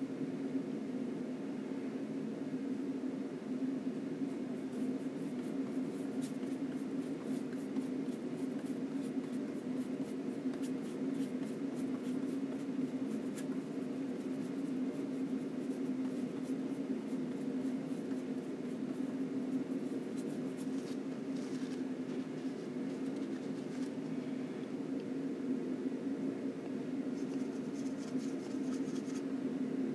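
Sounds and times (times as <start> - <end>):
low room hum: 0.0 - 29.9
paintbrush scratching on panel: 4.6 - 23.8, 27.2 - 29.3.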